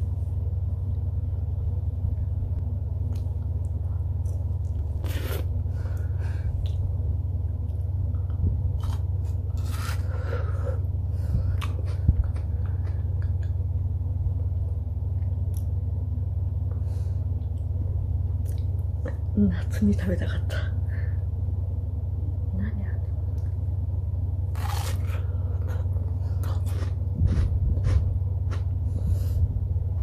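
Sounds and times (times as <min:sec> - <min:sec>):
steady low hum: 0:00.0 - 0:30.0
mouth biting and sucking: 0:05.0 - 0:05.5.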